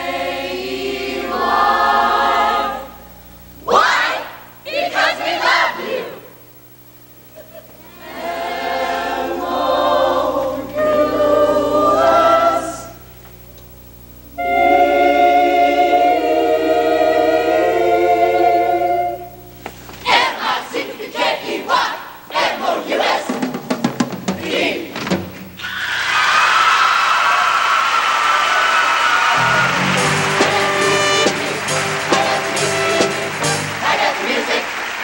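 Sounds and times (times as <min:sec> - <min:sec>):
mixed choir singing chords: 0:00.0 - 0:06.4, 0:07.8 - 0:13.1, 0:14.3 - 0:23.6, 0:24.2 - 0:25.0, 0:28.4 - 0:35.0
audience applause and cheering: 0:25.6 - 0:35.0.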